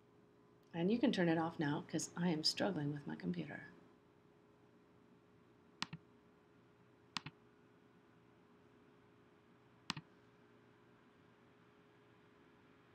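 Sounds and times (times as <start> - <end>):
faint steady hum: 0.0 - 12.9
mouse button clicks: 7.2 - 7.4.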